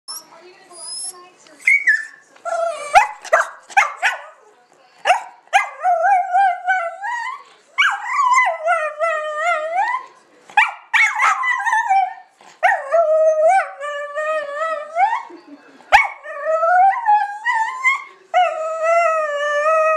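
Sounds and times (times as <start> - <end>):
dog yapping: 1.7 - 4.2.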